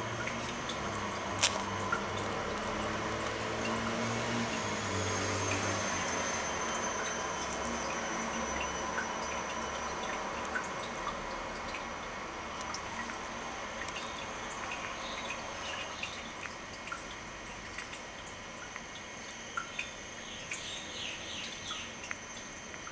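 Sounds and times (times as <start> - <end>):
faint high whine: 0.0 - 16.4
small ticks and clicks: 0.1 - 4.6, 11.8 - 22.9.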